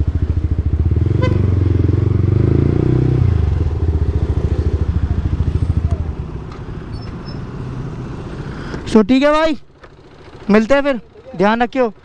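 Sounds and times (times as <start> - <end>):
motorcycle engine revving: 0.0 - 9.2.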